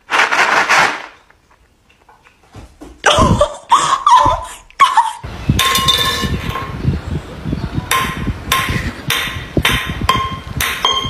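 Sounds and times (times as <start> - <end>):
sharp metallic clanks: 5.6 - 6.8, 7.9 - 11.0.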